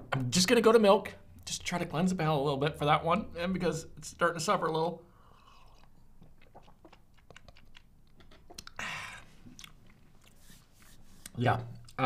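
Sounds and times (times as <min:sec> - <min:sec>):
wet lip and tongue clicks: 0:05.5 - 0:08.8.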